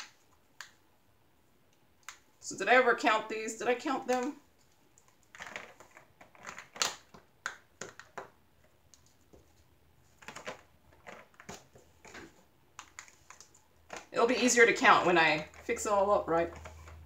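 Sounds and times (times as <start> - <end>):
plastic jars clicking together: 5.0 - 9.1.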